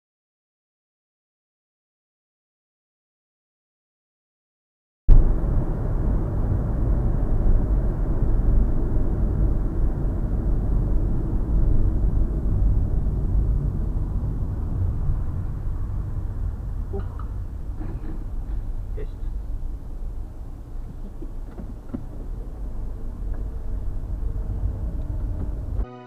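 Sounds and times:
car interior road rumble: 0:05.1 - 0:25.8.

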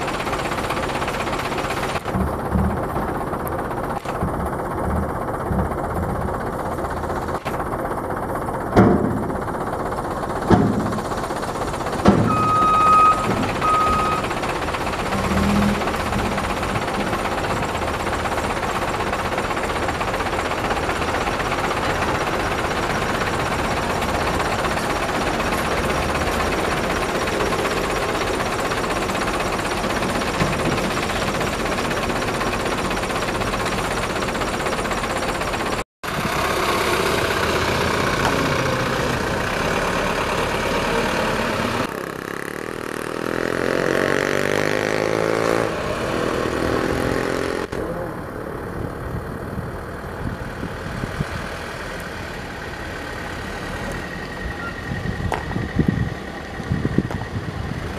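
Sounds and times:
diesel engine running: 0:00.0 - 0:57.9
short beeps: 0:12.3 - 0:14.3.

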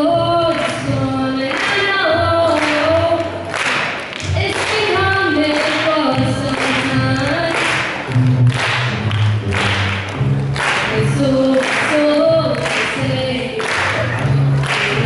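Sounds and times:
girl singing: 0:00.0 - 0:03.4, 0:04.2 - 0:07.8, 0:10.9 - 0:14.0
plucked double bass: 0:06.1 - 0:11.6.

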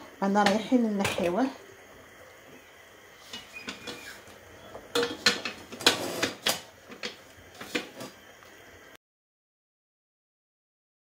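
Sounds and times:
utensil scraping steel pot: 0:03.2 - 0:08.2.

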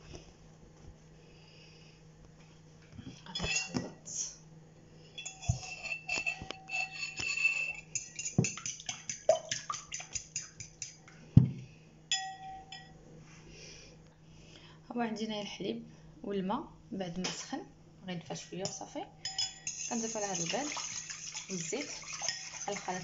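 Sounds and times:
fork clinking in ceramic bowl: 0:05.2 - 0:11.0, 0:12.1 - 0:13.0, 0:19.2 - 0:22.8.

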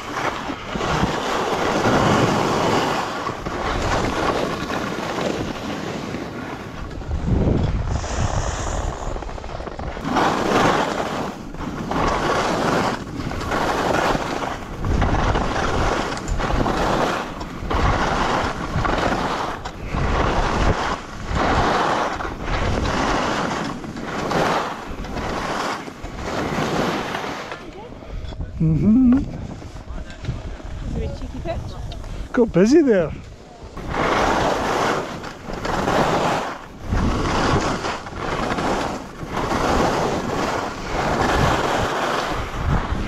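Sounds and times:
skis scraping across snow: 0:00.0 - 0:28.7, 0:29.3 - 0:43.0
wind on microphone: 0:00.0 - 0:43.0.

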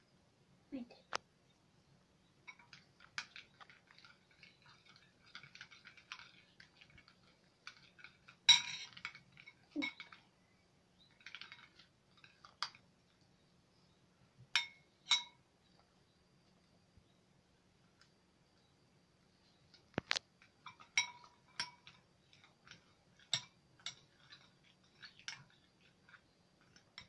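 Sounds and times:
spoons clinking against bowls: 0:02.4 - 0:10.2, 0:14.6 - 0:15.4, 0:20.6 - 0:27.0.

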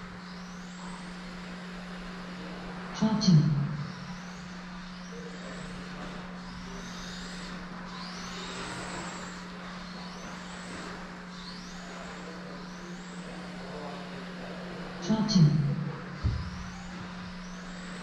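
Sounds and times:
steady low hum: 0:00.0 - 0:18.0
electric toy car motor whining: 0:04.1 - 0:13.4.

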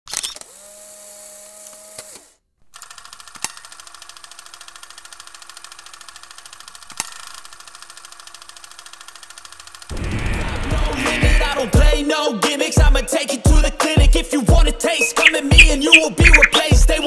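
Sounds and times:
fast mechanical ticking: 0:02.8 - 0:10.0.

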